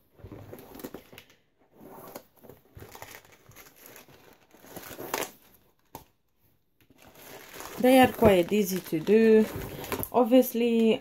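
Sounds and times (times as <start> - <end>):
canvas rustling: 7.1 - 10.1.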